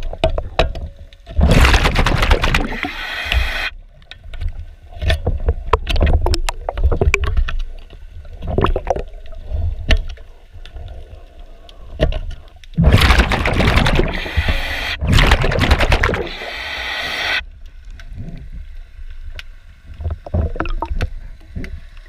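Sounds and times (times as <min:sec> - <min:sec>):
exhaled bubbles rushing: 0:01.4 - 0:03.2, 0:08.3 - 0:09.4, 0:12.8 - 0:16.8.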